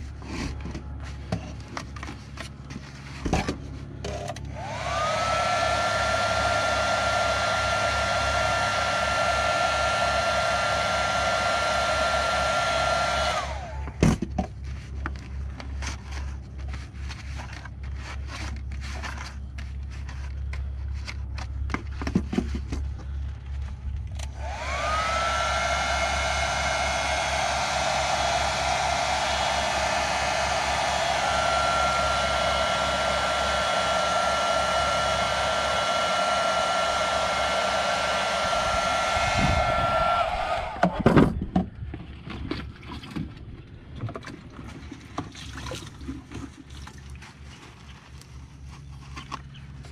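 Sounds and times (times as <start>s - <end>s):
heat gun fan whine and hiss: 4.3s - 14.2s, 24.1s - 41.3s.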